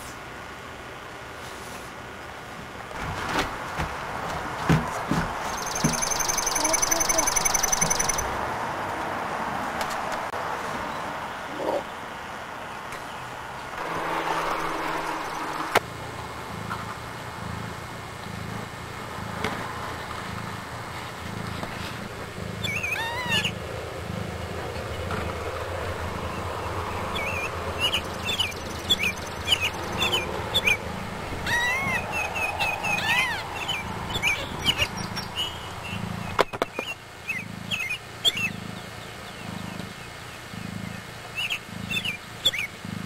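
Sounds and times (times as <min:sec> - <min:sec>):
cat purring: 0:13.8 - 0:36.4, 0:37.2 - 0:43.0
kittens mewing: 0:16.4 - 0:25.4, 0:27.2 - 0:36.4.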